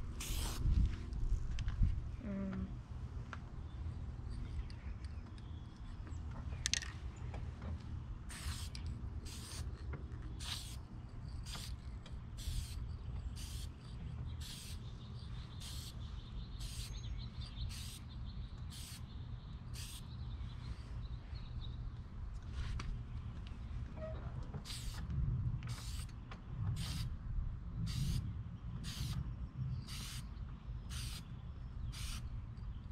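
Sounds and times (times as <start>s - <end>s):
wind rumble on microphone: 0.0s - 8.2s, 20.4s - 32.9s
spray-paint can hissing: 0.2s - 0.6s, 8.3s - 9.7s, 10.4s - 10.8s, 11.4s - 11.8s, 12.4s - 12.8s, 13.4s - 13.7s, 14.4s - 14.8s, 15.6s - 16.0s, 16.6s - 16.9s, 17.7s - 18.0s, 18.7s - 19.0s, 19.8s - 20.0s, 24.7s - 25.0s, 25.7s - 26.1s, 26.8s - 27.1s, 27.9s - 28.2s, 28.8s - 29.2s, 29.9s - 30.2s, 30.9s - 31.2s, 31.9s - 32.2s.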